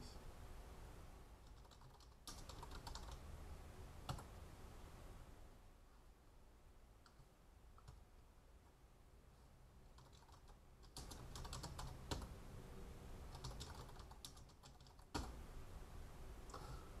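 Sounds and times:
faint keyboard typing: 1.4 - 3.3, 4.0 - 4.4, 7.0 - 8.1, 9.8 - 12.4, 13.2 - 15.4.

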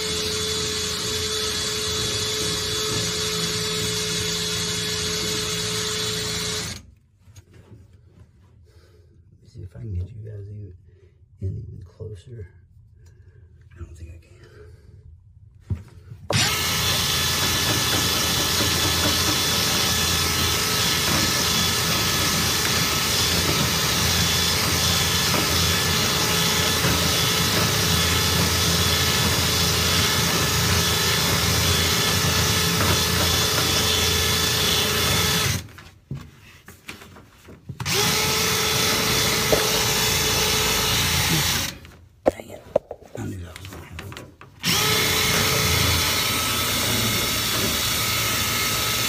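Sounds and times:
power drill spinning brush in duct: 16.3 - 35.7, 37.8 - 41.8.

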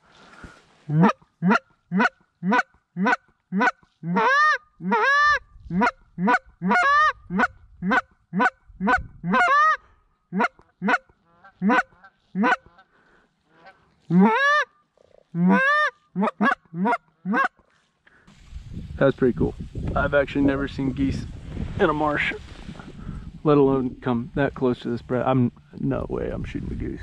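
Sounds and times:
geese honking: 0.9 - 17.6.

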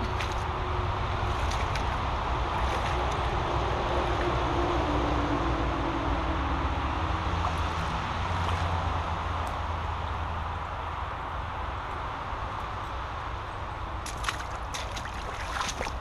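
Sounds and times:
brook water splashing over stones: 0.0 - 4.5, 7.3 - 9.0, 13.9 - 16.0.

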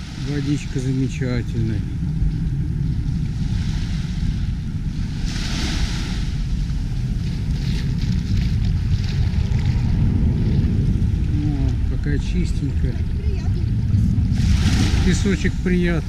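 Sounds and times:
wind buffeting microphone: 0.0 - 16.0
small waves lapping on sand: 3.3 - 10.6, 14.3 - 16.0.

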